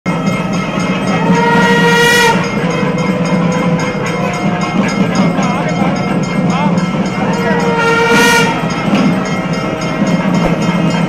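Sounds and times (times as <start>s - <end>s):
double-reed pipe playing: 1.2s - 2.8s, 7.5s - 8.9s.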